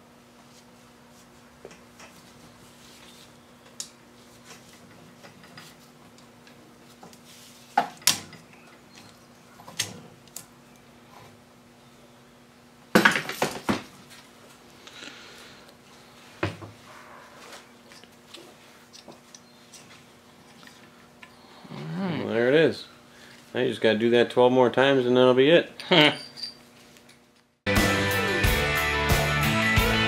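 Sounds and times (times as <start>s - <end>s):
metal clinks and clanks: 25.8s - 26.7s.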